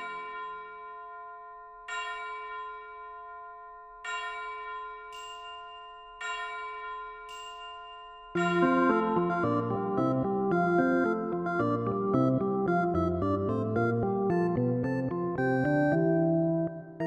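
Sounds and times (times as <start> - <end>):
bell-like chime chord: 0.0 - 11.5.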